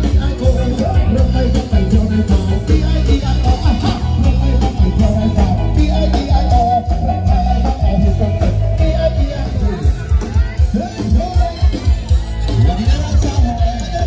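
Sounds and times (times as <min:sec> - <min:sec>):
loud live band music: 0:00.0 - 0:14.0.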